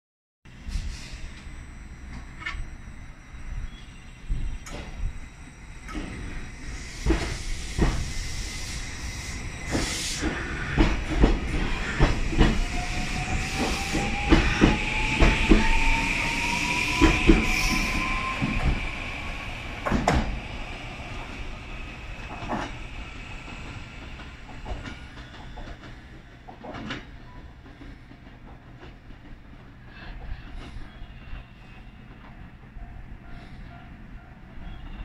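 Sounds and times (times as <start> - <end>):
train motor whine rising: 0.6 - 25.9.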